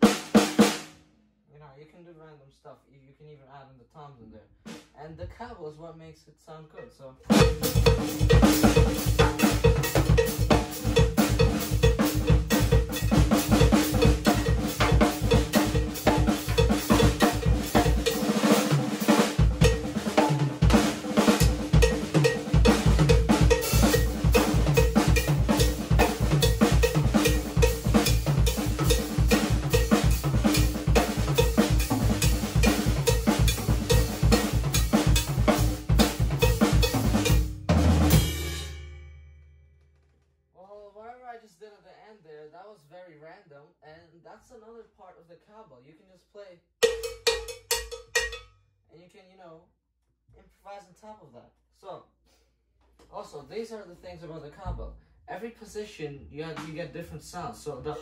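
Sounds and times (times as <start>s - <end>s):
cowbell pattern: 6.8s - 38.8s, 46.8s - 48.6s
bass drum: 7.3s - 38.8s, 46.8s - 48.4s.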